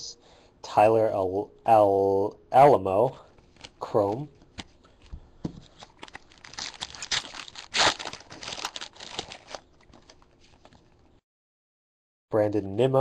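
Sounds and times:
foil wrapper tearing and crinkling: 5.8 - 10.7.

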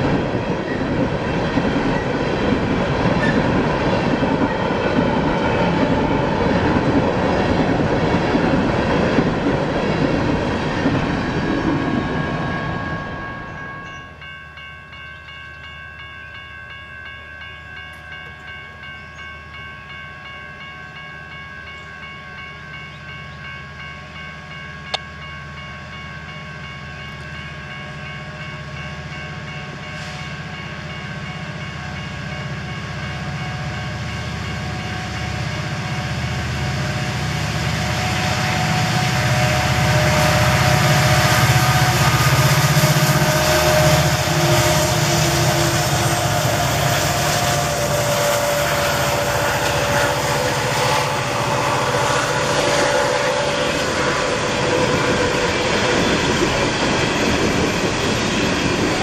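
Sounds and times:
railroad crossing bell ringing: 0.0 - 59.0
diesel locomotive rumble: 21.7 - 59.0.

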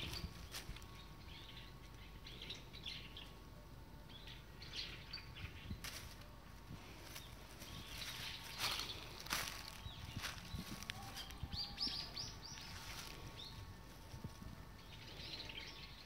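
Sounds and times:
rustle in dry leaves: 0.0 - 1.6, 5.7 - 16.0
songbirds chirping: 0.0 - 16.0.

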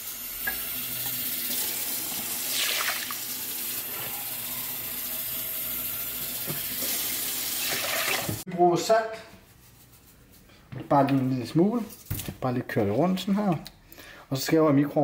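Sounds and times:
water running into a bowl: 0.3 - 8.4.

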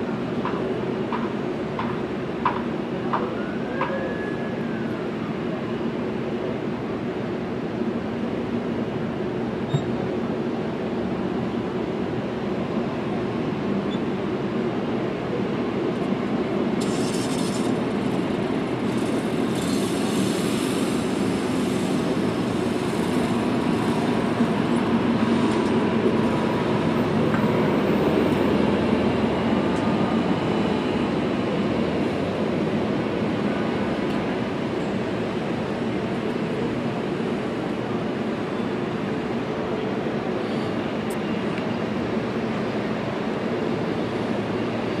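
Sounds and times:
mechanical drone with hiss: 16.8 - 24.5.

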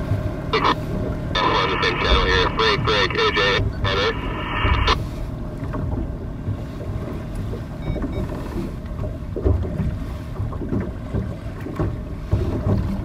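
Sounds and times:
faint steady hum: 0.5 - 6.2.

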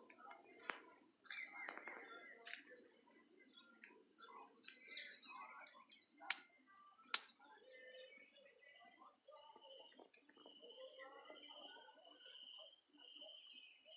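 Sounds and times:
birds chirping: 0.0 - 9.0
insect trill: 0.0 - 13.9.

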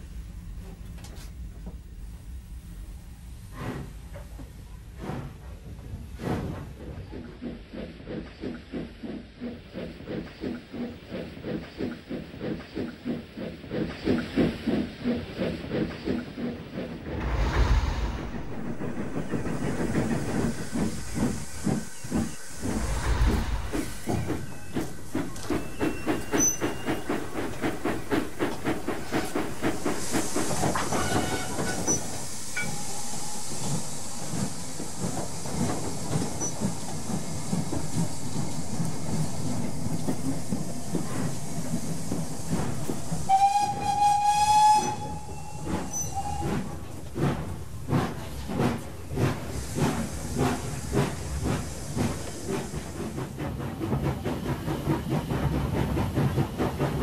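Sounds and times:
steam locomotive chuffing: 0.0 - 57.0
steam hissing: 2.0 - 57.0
steam whistle: 30.9 - 32.0, 43.3 - 46.6.

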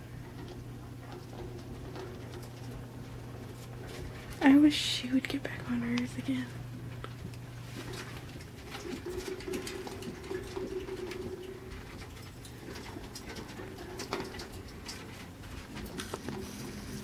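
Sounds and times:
clicking and tapping in wire cage: 7.0 - 16.4.

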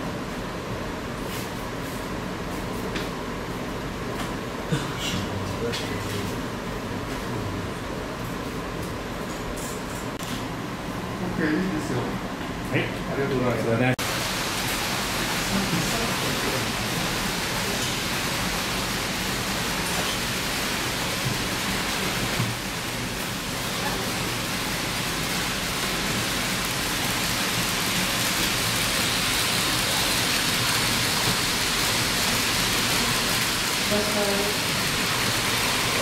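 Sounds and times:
model trains running on track: 14.0 - 36.0.

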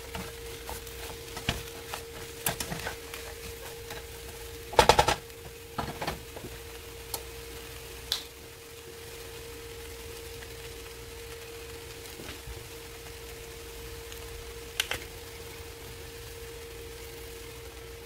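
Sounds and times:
spatula scraping skillet: 0.0 - 6.7
steady hum: 0.0 - 18.0.

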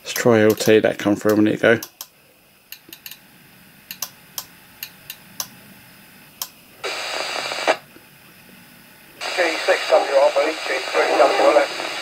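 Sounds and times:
radio static hiss: 6.8 - 7.9, 9.2 - 12.0.

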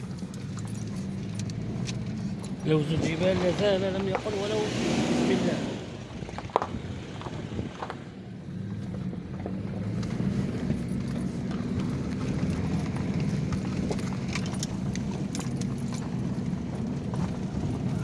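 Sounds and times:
car engine and road rumble: 0.0 - 18.0
stones knocking under tyres: 6.2 - 8.0, 8.7 - 18.0.

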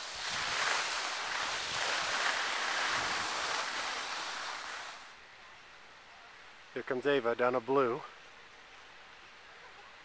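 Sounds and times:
skis hissing on snow: 0.0 - 5.2.

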